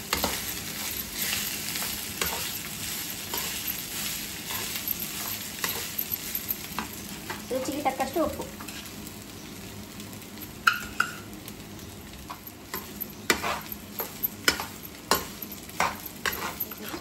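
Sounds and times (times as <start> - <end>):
metal spatula scraping a pan: 8.6 - 9.0, 12.8 - 17.0.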